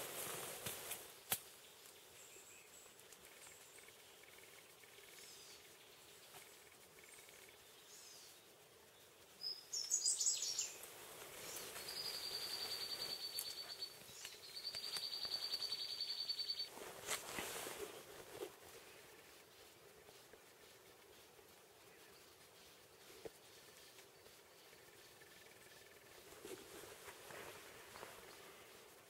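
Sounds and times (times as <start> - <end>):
high chirping: 11.4 - 16.7.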